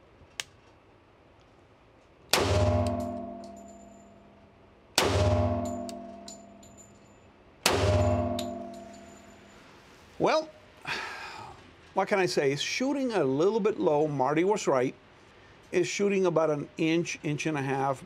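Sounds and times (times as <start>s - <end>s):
pistol gunshots: 2.3s - 3.6s, 5.0s - 6.2s, 7.6s - 8.9s
long ringing decay: 2.4s - 7.0s, 7.7s - 9.7s.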